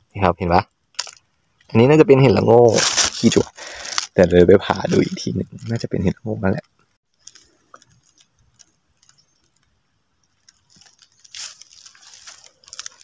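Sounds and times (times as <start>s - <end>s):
footsteps crunching in dry leaves: 2.7s - 4.2s, 10.5s - 13.0s.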